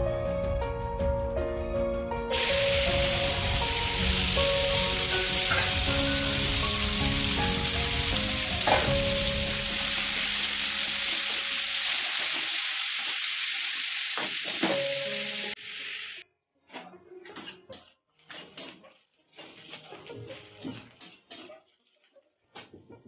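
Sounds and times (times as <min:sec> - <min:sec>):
potato sticks sizzling in hot oil: 0:02.3 - 0:16.1
metal spatula scraping a pan: 0:04.7 - 0:07.6, 0:18.1 - 0:22.1.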